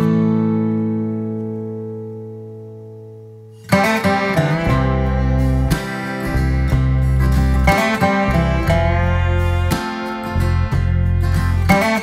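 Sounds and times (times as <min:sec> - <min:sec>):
strummed guitar: 0:00.0 - 0:12.0
low bass: 0:02.4 - 0:12.0.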